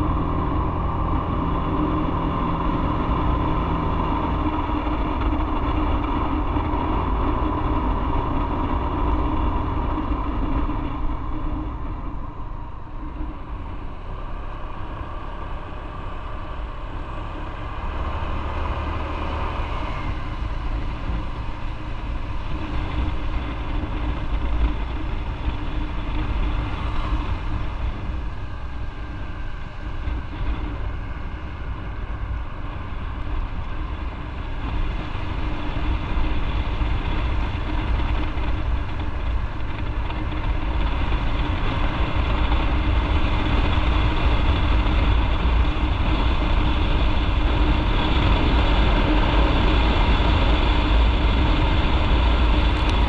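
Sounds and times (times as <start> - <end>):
motorcycle engine rumbling: 0.0 - 53.0.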